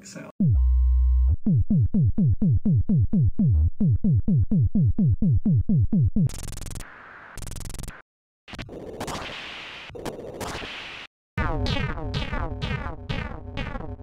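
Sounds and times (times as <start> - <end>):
low synthesizer note: 0.4 - 5.3, 11.4 - 14.0.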